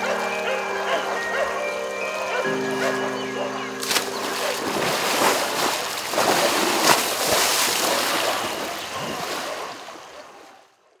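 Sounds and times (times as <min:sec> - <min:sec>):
elephant splashing water: 0:03.8 - 0:10.7.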